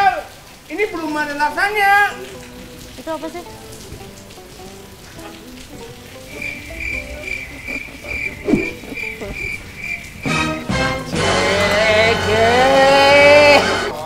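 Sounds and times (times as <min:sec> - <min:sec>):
cricket chirping: 0:06.2 - 0:10.7
man crying out: 0:12.3 - 0:14.0.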